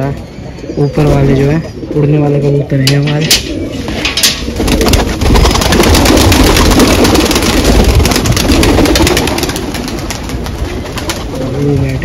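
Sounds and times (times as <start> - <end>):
pigeon wings flapping: 4.0 - 12.0.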